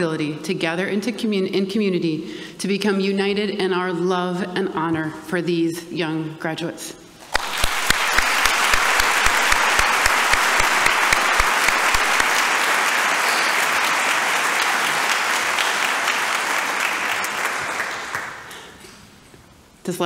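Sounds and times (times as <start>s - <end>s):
crowd applauding: 7.2s - 18.8s
close single claps: 7.3s - 16.2s.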